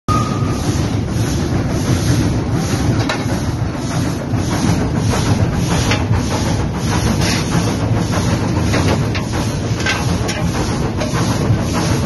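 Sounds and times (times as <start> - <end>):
steam locomotive cab rumble: 0.1 - 12.0.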